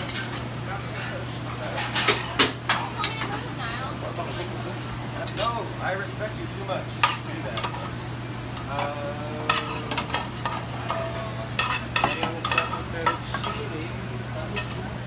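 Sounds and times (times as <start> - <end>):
utensils clinking on plates: 0.0 - 3.5, 5.2 - 5.6, 7.0 - 15.0
steady low hum: 0.0 - 15.0.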